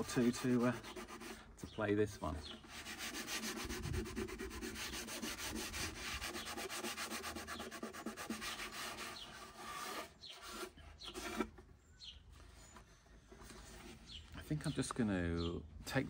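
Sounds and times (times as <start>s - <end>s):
sandpaper rubbing on wood: 0.0s - 1.6s, 2.5s - 11.5s.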